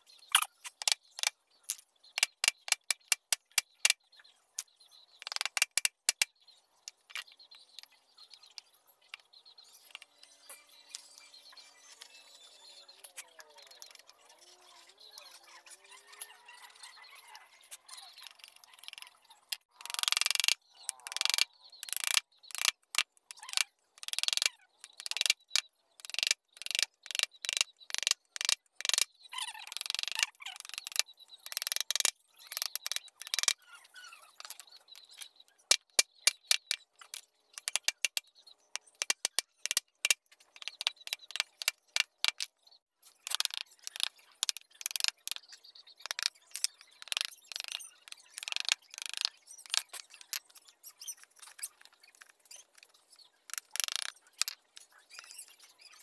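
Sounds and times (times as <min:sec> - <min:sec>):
chisel edge ticking on wood: 0:19.9 - 0:29.1, 0:29.8 - 0:33.5, 0:37.6 - 0:38.2.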